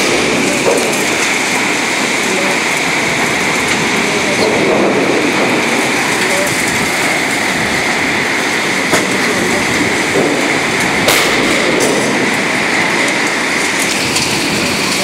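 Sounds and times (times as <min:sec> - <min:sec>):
loud tornado winds: 0:00.0 - 0:15.0
sharp knocks: 0:10.1 - 0:12.5.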